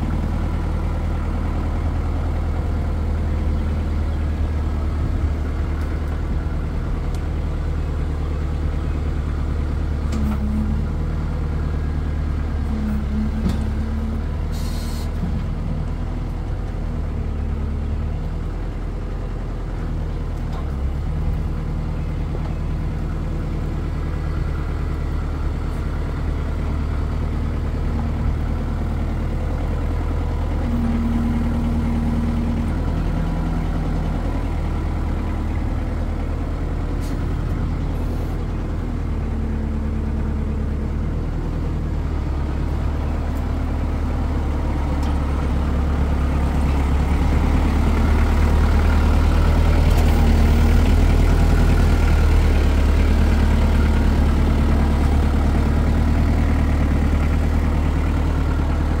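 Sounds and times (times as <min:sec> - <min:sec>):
diesel engine running: 0:00.0 - 0:59.0.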